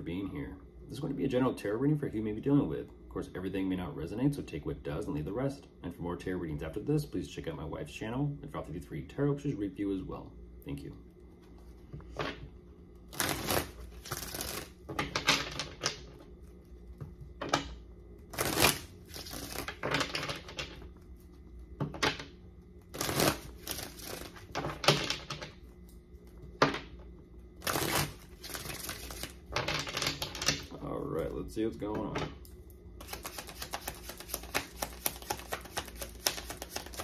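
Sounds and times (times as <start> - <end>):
cards being shuffled: 13.1 - 16.2, 18.3 - 20.8, 22.8 - 25.5, 27.6 - 30.6, 33.0 - 37.0.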